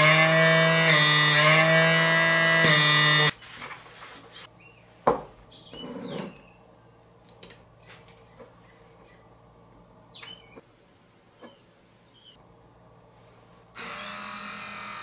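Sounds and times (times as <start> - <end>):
handling and wiping noises: 3.4 - 4.5
small pump motor whining: 13.8 - 15.0.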